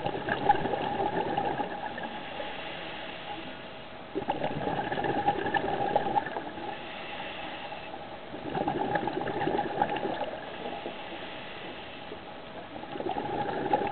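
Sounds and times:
scuba regulator bubbles underwater: 0.0 - 3.4, 4.1 - 7.0, 8.3 - 11.8, 12.6 - 13.9.

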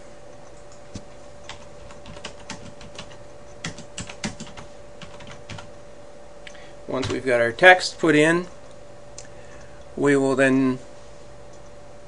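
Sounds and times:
computer keyboard typing: 0.6 - 5.7.

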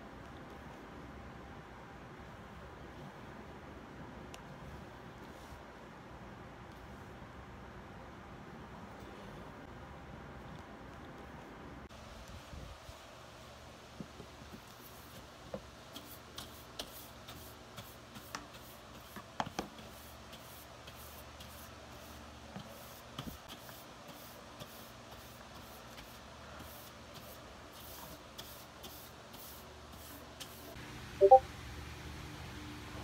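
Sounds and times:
brush sweeping paper: 15.9 - 30.8.

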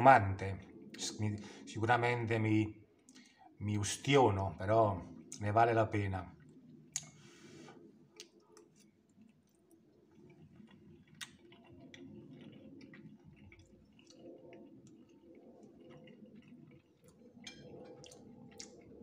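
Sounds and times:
person chewing: 6.9 - 19.0.

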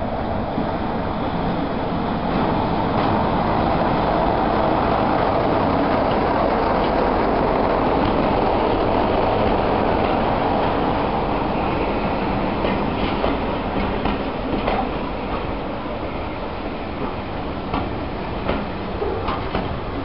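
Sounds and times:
train wheels rumbling on rails: 0.0 - 20.0
wheels clicking over rail joints: 4.6 - 11.4, 12.3 - 15.6, 17.0 - 20.0.

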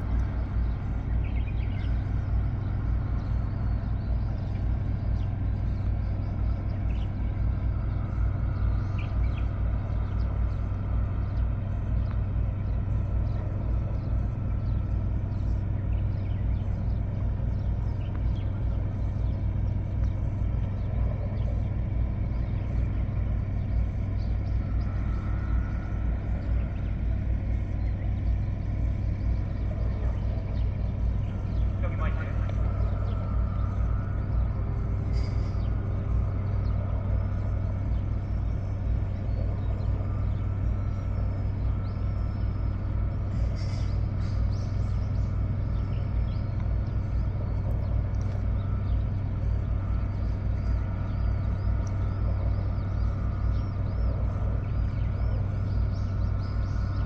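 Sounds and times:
boat engine droning: 0.0 - 57.0.

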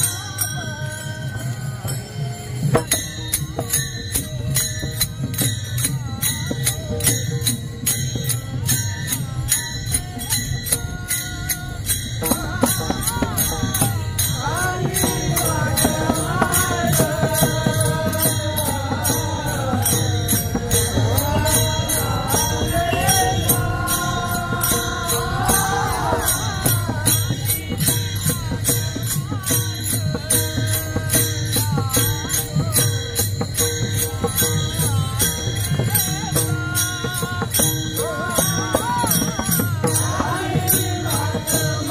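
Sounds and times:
hand cymbals jingling: 0.0 - 41.9
person singing: 9.5 - 32.9
drum: 10.0 - 41.9.

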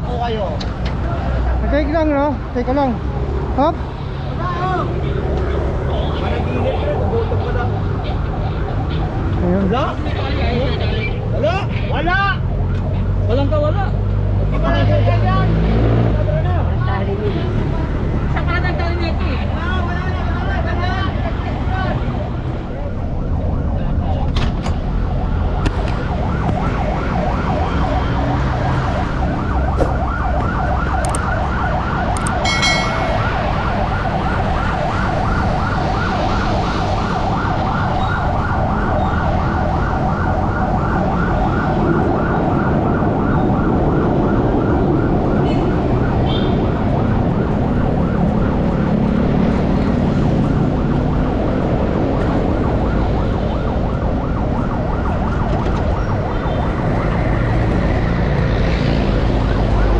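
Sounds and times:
engines and road noise: 0.0 - 59.9
yelp siren: 24.8 - 59.9.

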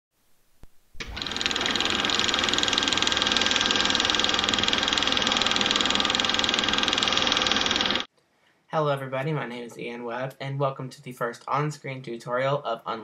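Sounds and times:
film projector clattering: 1.0 - 8.1.

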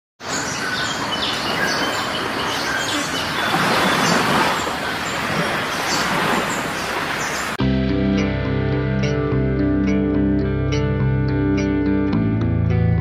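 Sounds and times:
high bird chirps: 0.2 - 7.6.

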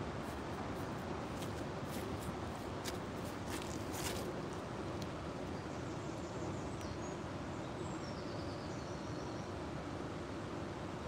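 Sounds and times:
river flowing over stones: 0.0 - 5.6.

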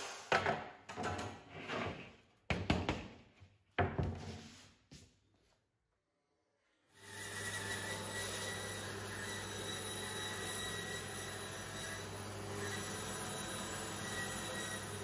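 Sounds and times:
bandsaw humming and whining: 7.0 - 15.0.

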